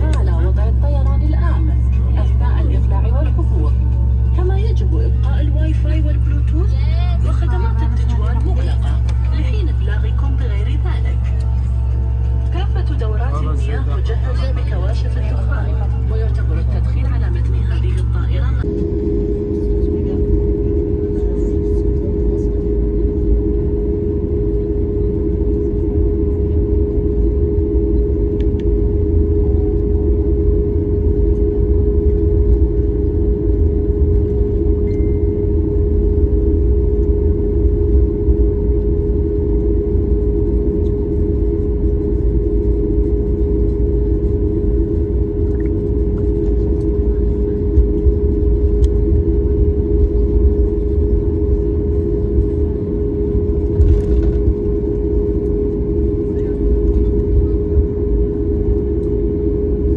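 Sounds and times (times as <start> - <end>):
jet engines low rumble: 0.0 - 59.9
steady cabin hum: 0.0 - 59.9.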